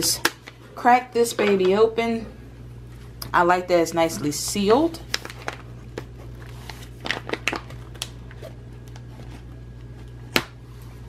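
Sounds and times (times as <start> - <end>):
foil bag crinkling: 5.0 - 10.2.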